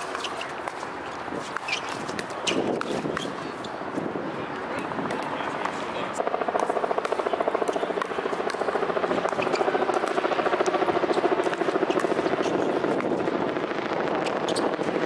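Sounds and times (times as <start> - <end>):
helicopter rotor thrum: 6.2 - 15.0.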